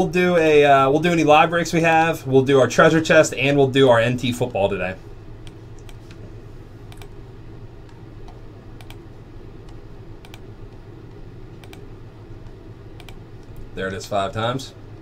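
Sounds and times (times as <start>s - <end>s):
steady low hum: 0.0s - 15.0s
computer mouse clicking: 5.4s - 6.2s, 6.9s - 7.2s, 7.8s - 9.0s, 9.6s - 10.8s, 11.5s - 13.7s.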